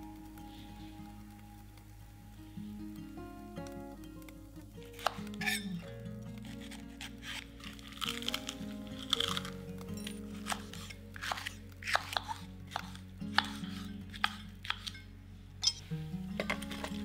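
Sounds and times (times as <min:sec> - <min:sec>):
knife chopping on wooden board: 0:10.6 - 0:13.6.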